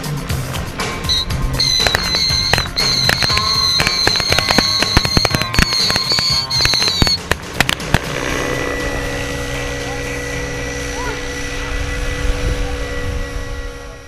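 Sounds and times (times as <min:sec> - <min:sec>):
high whistle: 0:01.0 - 0:07.3
crackling pyrotechnic pops and bangs: 0:01.6 - 0:08.4.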